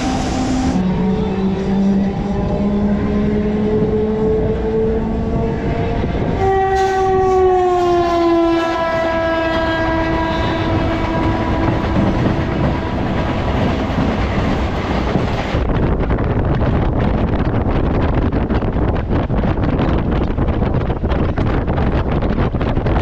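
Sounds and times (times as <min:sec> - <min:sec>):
train horn: 0:00.0 - 0:13.9
electric train running on rails: 0:00.0 - 0:23.0
wind on microphone: 0:00.0 - 0:23.0.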